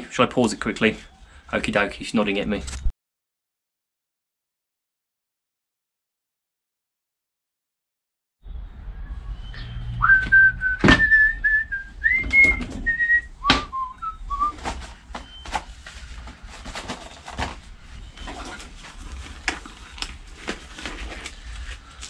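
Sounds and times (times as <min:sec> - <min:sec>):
person whistling a tune: 0:09.5 - 0:14.6.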